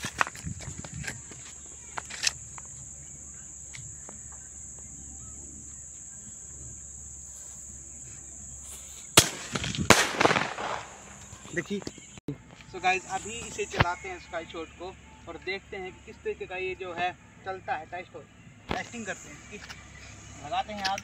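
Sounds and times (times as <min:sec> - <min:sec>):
high insect trill: 0:00.0 - 0:21.0
firework crack: 0:08.6 - 0:11.8
firework bang: 0:09.2 - 0:11.6.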